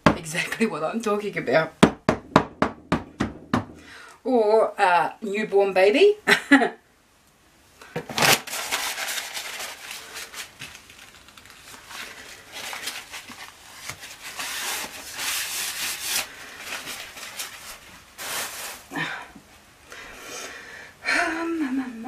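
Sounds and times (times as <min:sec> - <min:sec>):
paper towel rustling and rubbing: 0:08.2 - 0:19.0.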